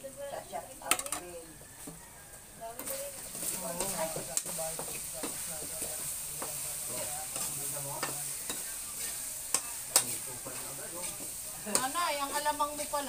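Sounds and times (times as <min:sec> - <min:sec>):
meat sizzling in a pan: 0:02.6 - 0:13.0
spatula scraping a pan: 0:02.8 - 0:13.0.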